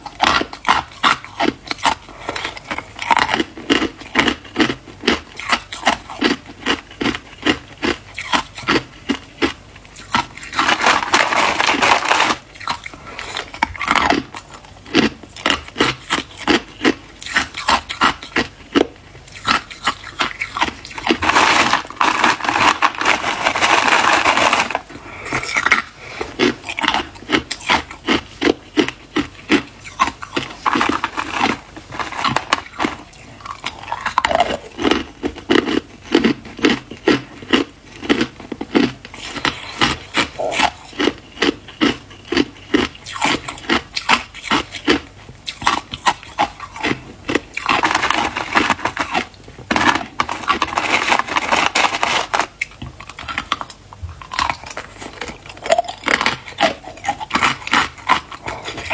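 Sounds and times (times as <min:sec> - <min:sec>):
ice being chewed: 0:00.0 - 0:58.9
ice rattling in plastic tub: 0:10.5 - 0:12.5, 0:20.9 - 0:24.8, 0:47.6 - 0:52.5.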